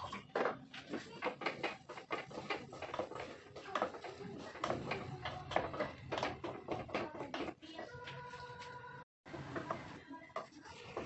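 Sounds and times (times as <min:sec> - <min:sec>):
wooden spoon scraping a pot: 0:00.0 - 0:08.6.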